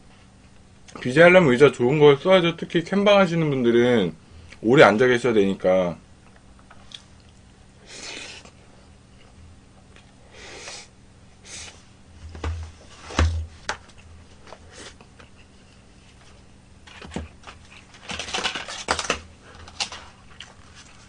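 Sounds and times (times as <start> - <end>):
chewing and mouth smacks: 6.3 - 7.5, 20.3 - 21.0.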